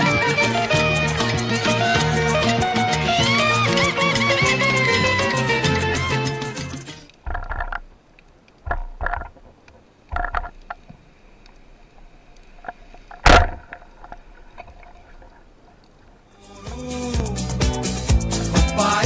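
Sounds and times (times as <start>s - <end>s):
muffled underwater knocks: 7.2s - 7.9s, 8.6s - 11.0s
speargun firing crack: 13.2s - 13.9s.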